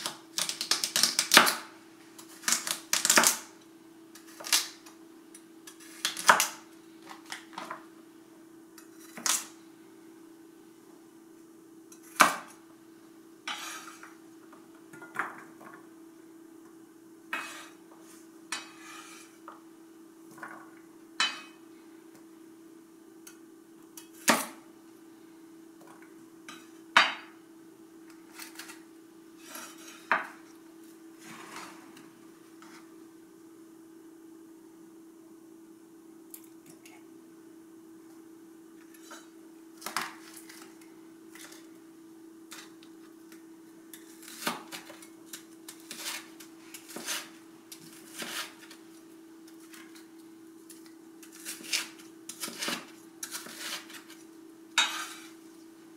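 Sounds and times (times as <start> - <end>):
pieces clattering into skillet: 54.8 - 55.4.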